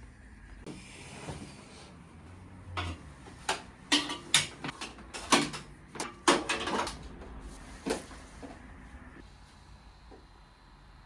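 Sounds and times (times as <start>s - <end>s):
office equipment clattering: 2.8s - 7.2s.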